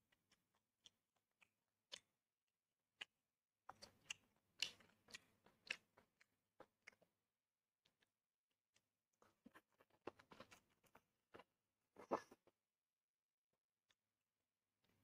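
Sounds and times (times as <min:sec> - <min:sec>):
mouth chewing clicks and smacks: 0:00.1 - 0:02.2, 0:02.9 - 0:07.2.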